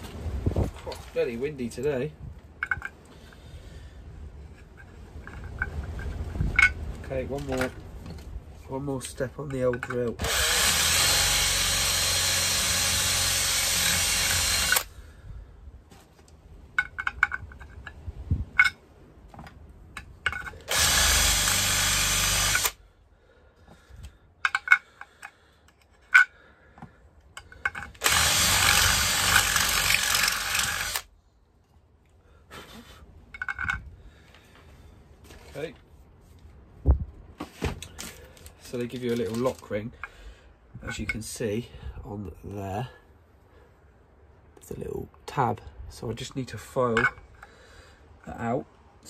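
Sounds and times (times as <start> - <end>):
cordless drill boring metal: 10.0 - 14.9, 20.4 - 22.8, 27.6 - 31.1.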